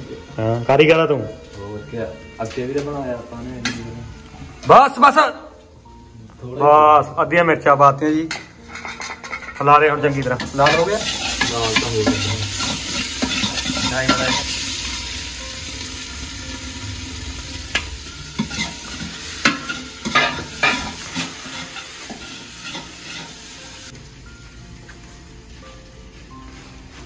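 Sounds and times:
onions frying in hot oil: 0.0 - 7.4, 9.8 - 25.6
spoon scraping metal pot: 10.4 - 14.5, 18.4 - 23.4.

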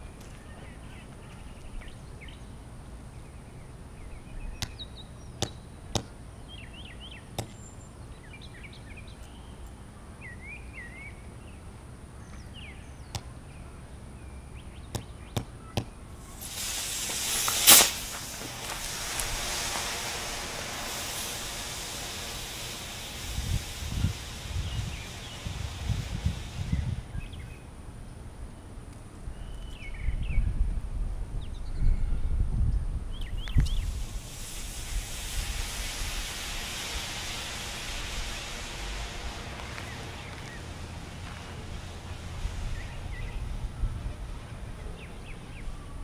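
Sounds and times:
birds chirping: 0.0 - 16.4, 38.9 - 46.0
loud sharp pop: 14.9 - 18.9
battery venting hiss: 16.2 - 27.5, 33.3 - 44.5.

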